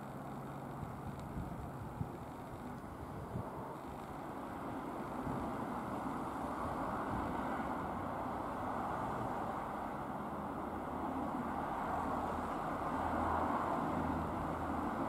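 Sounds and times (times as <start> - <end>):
distant propeller plane drone: 0.0 - 15.0.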